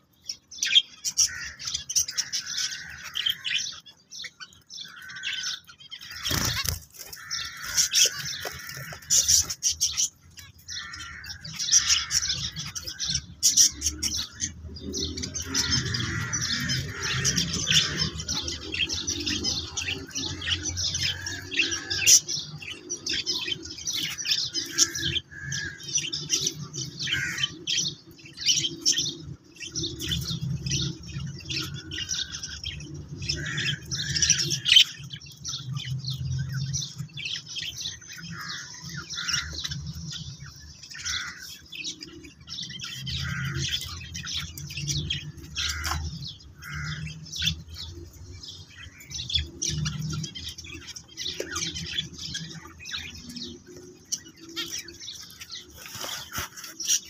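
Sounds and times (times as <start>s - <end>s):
finches chirping: 0.0s - 57.0s.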